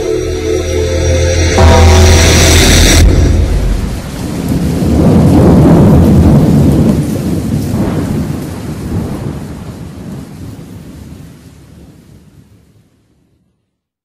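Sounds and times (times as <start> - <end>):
music: 0.0 - 4.3
thunder rumbling: 0.9 - 12.9
rain: 1.6 - 13.9.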